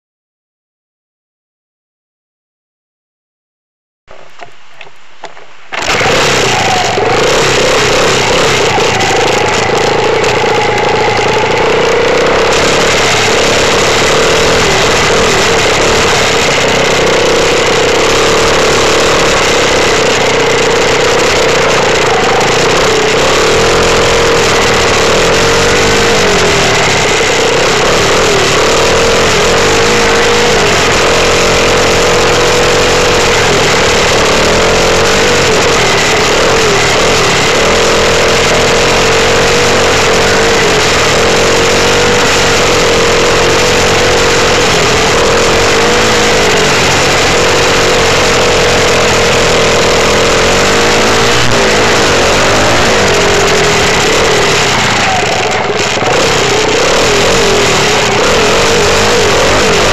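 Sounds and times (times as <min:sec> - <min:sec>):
dirt bike engine revving: 0:05.7 - 0:59.9.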